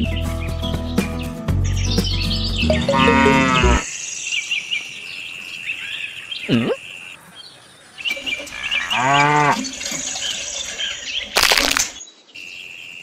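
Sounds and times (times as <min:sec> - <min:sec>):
background music: 0:00.0 - 0:03.8
birds chirping: 0:00.0 - 0:13.0
cow mooing: 0:02.8 - 0:03.8, 0:08.8 - 0:09.6.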